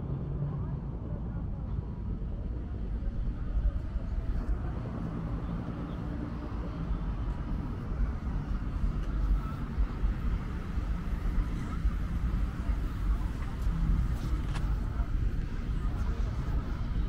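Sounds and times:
city ambience rumble: 0:00.0 - 0:17.0.

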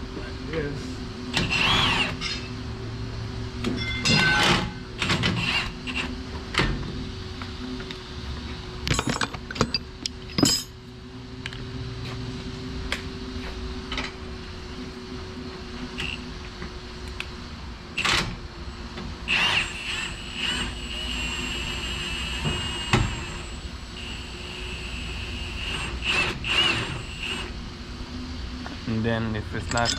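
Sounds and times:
cordless power tool whining: 0:01.3 - 0:02.2
metal tools clinking: 0:08.9 - 0:10.8, 0:29.5 - 0:29.9.

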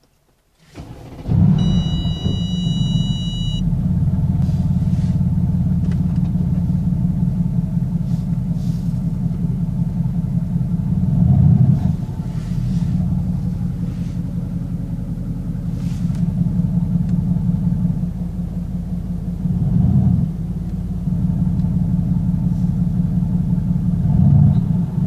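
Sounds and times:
car engine cold start and idle: 0:00.0 - 0:25.0
high steady tone: 0:01.6 - 0:03.7.

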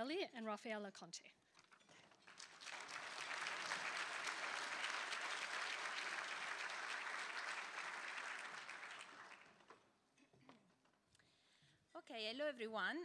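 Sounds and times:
audience clapping: 0:02.0 - 0:09.9.

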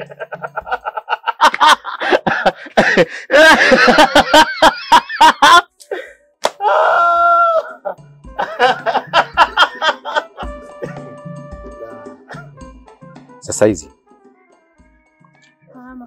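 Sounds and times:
man laughing loudly: 0:00.0 - 0:05.7, 0:07.3 - 0:12.5
man's long held cry: 0:06.6 - 0:07.9
light marimba-like music: 0:08.0 - 0:16.0.

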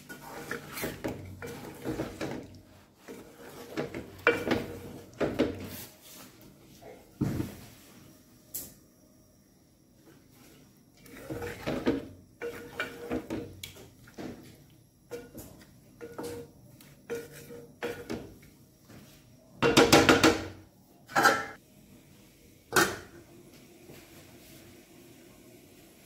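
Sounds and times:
wooden spatula scraping metal pot: 0:00.0 - 0:05.9, 0:11.0 - 0:13.4, 0:16.0 - 0:18.2.

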